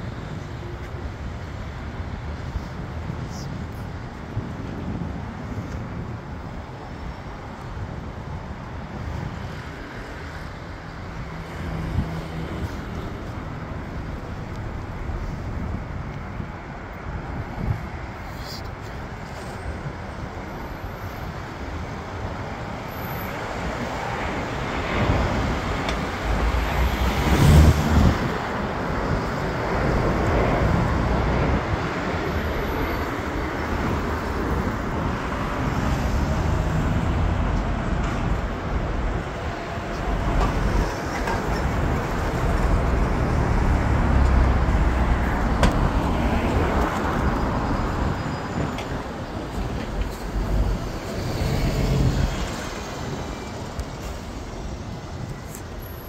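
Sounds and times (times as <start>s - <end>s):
road traffic passing: 0.0s - 56.0s.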